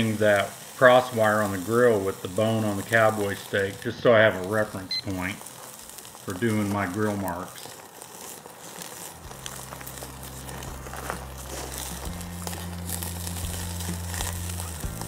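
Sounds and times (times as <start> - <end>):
steak sizzling on a grill: 0.0 - 15.0
low background music notes: 8.6 - 15.0.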